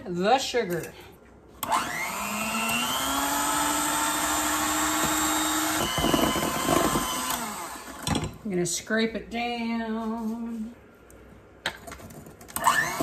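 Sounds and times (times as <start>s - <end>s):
electric hand mixer whining: 1.6s - 8.1s, 12.6s - 13.0s.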